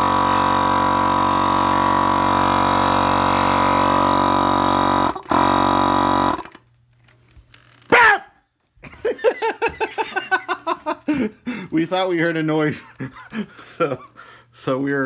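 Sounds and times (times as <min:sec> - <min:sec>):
air compressor buzzing hum: 0:00.0 - 0:08.0
people laughing: 0:08.8 - 0:11.6, 0:12.7 - 0:14.2.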